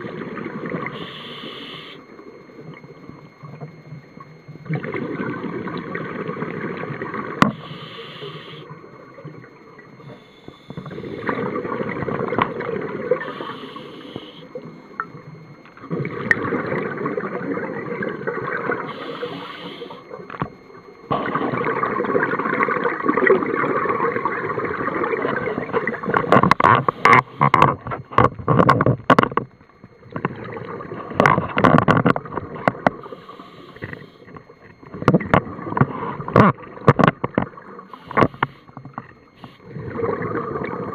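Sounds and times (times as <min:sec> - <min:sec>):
crackling exhaust bubbles: 0:00.0 - 0:40.9
diver breathing through regulator: 0:01.0 - 0:02.0, 0:07.5 - 0:08.7, 0:13.2 - 0:14.5, 0:18.9 - 0:20.0, 0:33.0 - 0:34.3.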